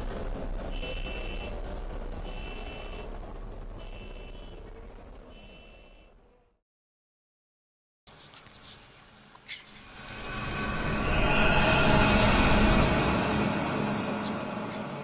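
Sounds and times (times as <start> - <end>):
low rumbling drone: 0.0 - 6.6, 9.8 - 15.0.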